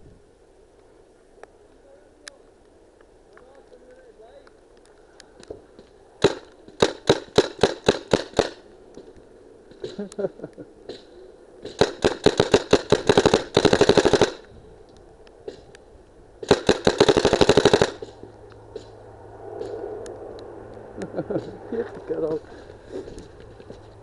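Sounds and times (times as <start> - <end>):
paintball marker firing: 6.2 - 9.1, 10.9 - 14.5, 16.4 - 19.0.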